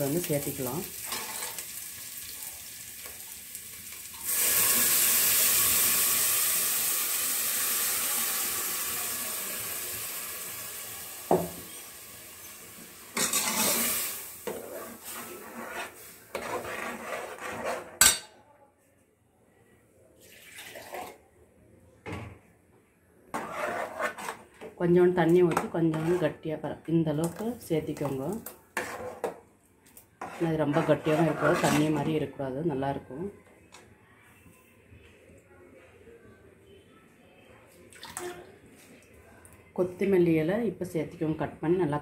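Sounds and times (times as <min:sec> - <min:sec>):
food sizzling in hot oil: 0:00.0 - 0:16.4
ladle knocking and scraping pot: 0:13.2 - 0:18.3, 0:23.3 - 0:24.7, 0:25.5 - 0:26.4, 0:28.0 - 0:29.4, 0:30.2 - 0:32.3.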